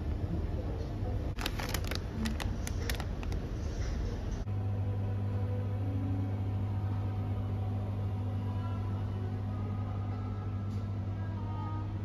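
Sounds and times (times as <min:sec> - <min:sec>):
freezer compressor hum: 0:00.0 - 0:12.0.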